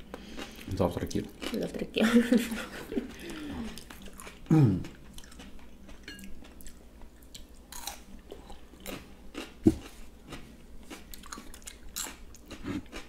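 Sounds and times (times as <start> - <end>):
wet chewing and crunching: 3.1 - 13.0.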